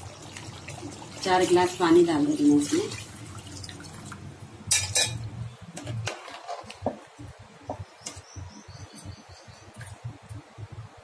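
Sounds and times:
metal spoon clinking on steel pot: 0:04.7 - 0:05.2.

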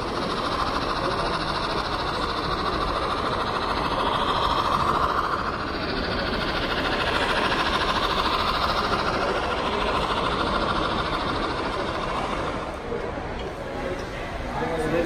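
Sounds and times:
model trains running on track: 0:00.0 - 0:15.0.

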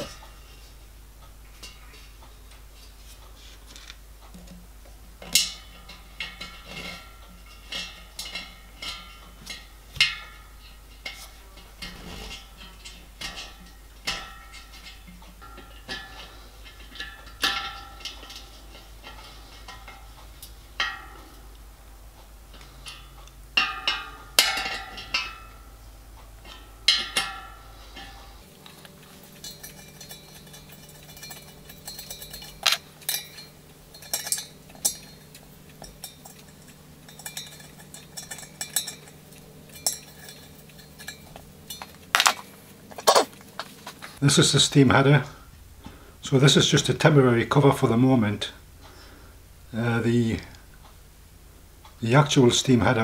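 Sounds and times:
low steady hum: 0:00.0 - 0:53.0
metallic clinks of spanner and fittings: 0:26.9 - 0:42.6.

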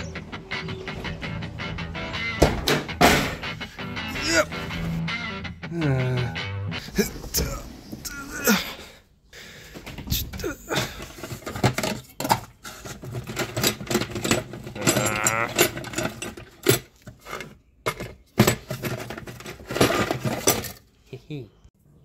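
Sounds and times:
plastic containers rattling: 0:09.8 - 0:20.9
metal bolts clinking: 0:11.2 - 0:20.9.

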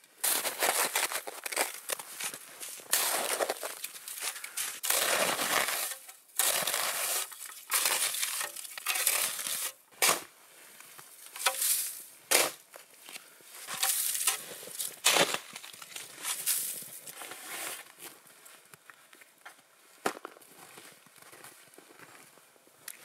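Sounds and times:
deep snow crunching: 0:00.2 - 0:12.6, 0:13.5 - 0:18.2.

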